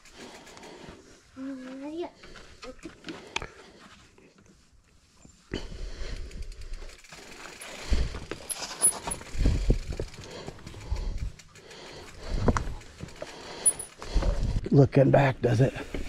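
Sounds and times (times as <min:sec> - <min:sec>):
bike tyres grinding on rock: 0:06.3 - 0:14.6.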